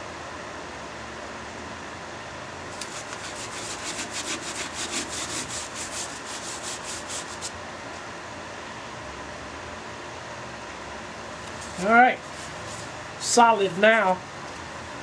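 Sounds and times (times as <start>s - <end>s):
steady hum: 0.0s - 15.0s
gloved hand rubbing wood: 2.7s - 7.6s.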